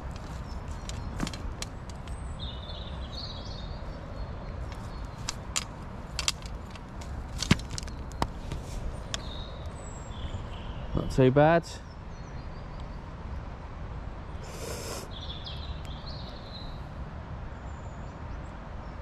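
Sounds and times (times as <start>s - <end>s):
clicks and knocks from handling gear: 0.0s - 2.2s, 4.5s - 9.2s.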